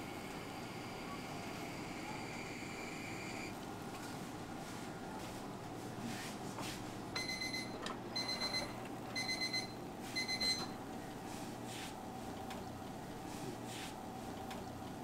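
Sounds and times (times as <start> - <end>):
kitchen alarm beeping: 7.2 - 10.8.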